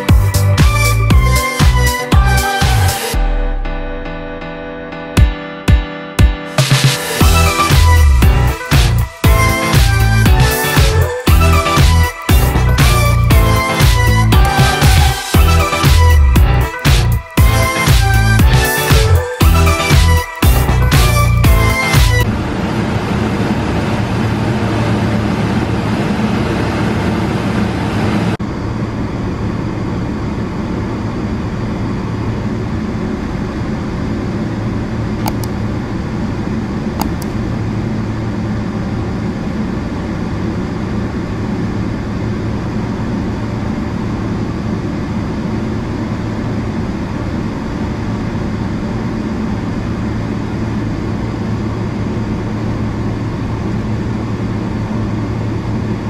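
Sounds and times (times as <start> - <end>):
aircraft cabin hum: 20.4 - 56.0.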